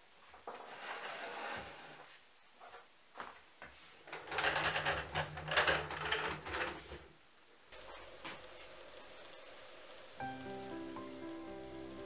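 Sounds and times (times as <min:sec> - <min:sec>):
soft scuffing: 0:02.0 - 0:04.0
table wheels rumbling on floor: 0:04.1 - 0:07.1.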